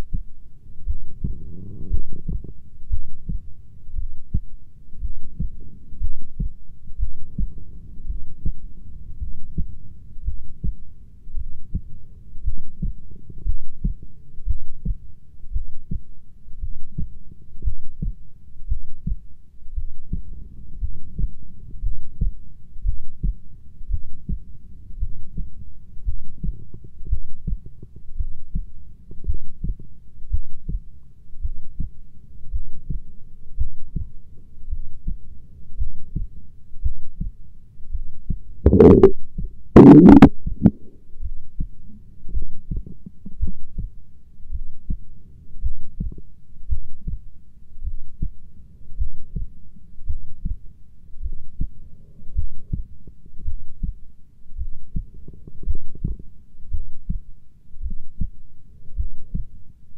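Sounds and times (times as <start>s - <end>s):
heartbeat thumps: 0.0s - 31.9s, 32.5s - 34.1s, 34.7s - 48.4s, 49.0s - 50.6s, 51.2s - 54.0s, 54.6s - 59.6s.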